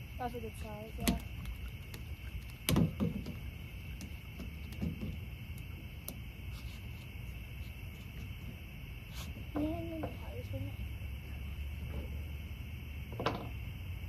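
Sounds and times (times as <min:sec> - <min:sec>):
insects chirping: 0:00.0 - 0:14.0
soft thumps: 0:01.0 - 0:06.2.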